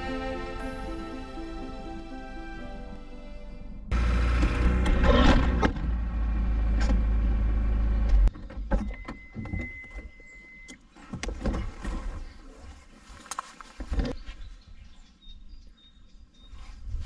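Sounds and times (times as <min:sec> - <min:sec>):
car engine humming: 0:00.0 - 0:08.3.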